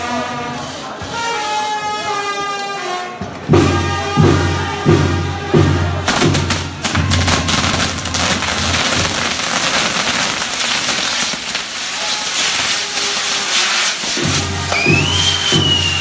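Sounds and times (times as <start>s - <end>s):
fireworks crackling and popping: 3.2s - 16.0s.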